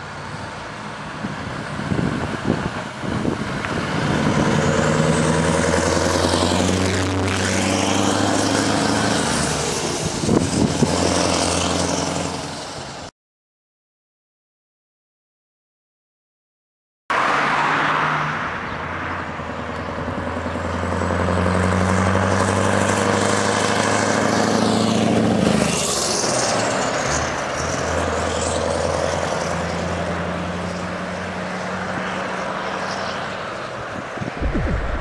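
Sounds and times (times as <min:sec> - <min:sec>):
truck driving past: 0:00.0 - 0:13.0, 0:17.2 - 0:26.2, 0:34.2 - 0:35.0
diesel truck engine: 0:00.0 - 0:13.1, 0:18.4 - 0:35.0.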